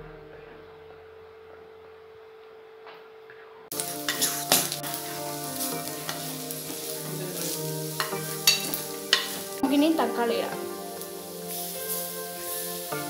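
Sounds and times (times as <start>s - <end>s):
onions sizzling in a pot: 3.7s - 13.0s
spatula scraping a pot: 4.0s - 9.6s.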